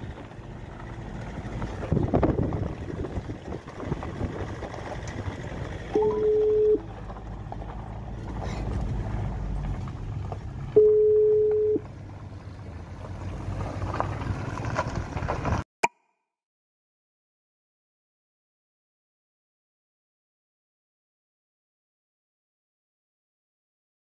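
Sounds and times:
vehicle engine and road rumble: 0.0s - 15.7s
steady single-pitch tone: 5.9s - 6.9s, 10.8s - 11.8s.

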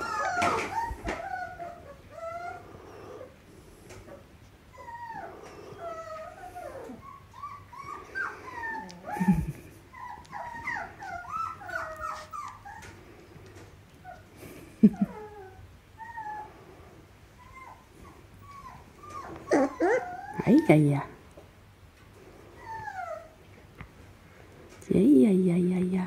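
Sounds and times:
puppy whimpering and squeaking: 0.0s - 3.3s, 4.7s - 13.0s, 15.0s - 16.5s, 17.4s - 20.8s, 22.6s - 23.4s.

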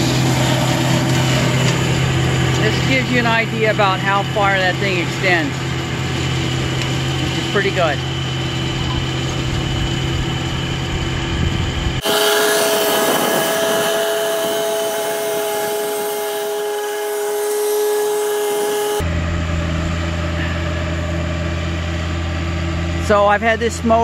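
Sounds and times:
flail mower cutting grass: 0.0s - 19.1s
tractor diesel engine running: 0.0s - 24.0s.

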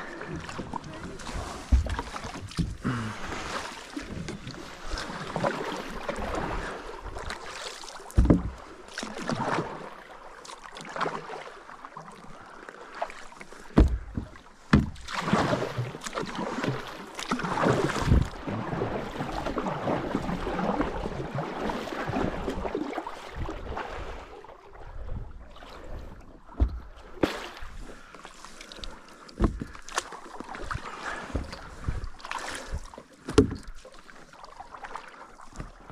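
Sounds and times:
paddle splashing through water: 0.0s - 35.9s
paddle knocking against kayak: 0.4s - 4.6s, 8.0s - 9.6s, 13.6s - 19.6s, 26.5s - 27.8s, 29.3s - 33.8s.

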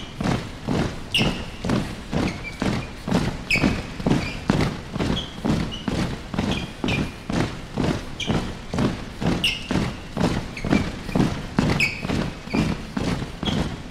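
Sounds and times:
shoes stomping on stage floor: 0.0s - 13.9s
shoe squeaks: 1.0s - 13.9s.

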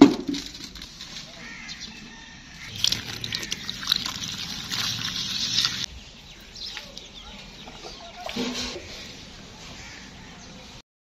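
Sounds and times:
hose water pouring into bucket: 2.7s - 5.9s
water sloshing in bucket: 2.7s - 5.9s, 7.7s - 9.2s.

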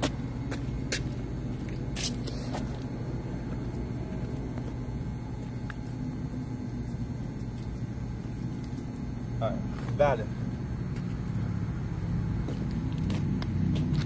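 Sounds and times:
low mechanical hum: 0.0s - 14.0s.

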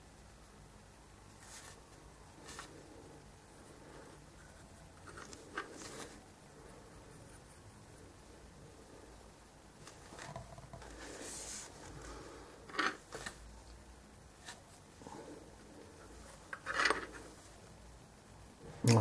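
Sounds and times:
soft rustles: 1.3s - 3.0s, 9.8s - 17.6s.

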